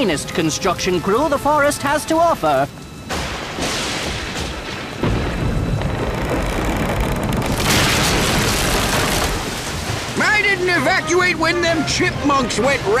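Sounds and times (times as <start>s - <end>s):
deep boom: 3.1s - 10.1s
floodwater rushing: 4.9s - 13.0s.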